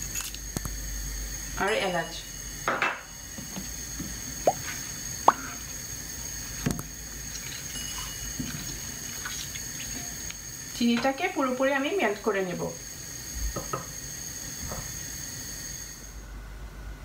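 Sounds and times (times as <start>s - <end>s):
liquid sloshing in a saucepan: 4.4s - 10.4s.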